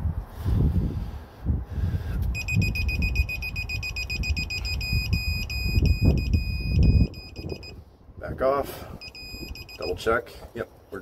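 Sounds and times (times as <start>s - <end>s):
torque wrench beeping: 2.3s - 7.8s, 9.0s - 10.0s.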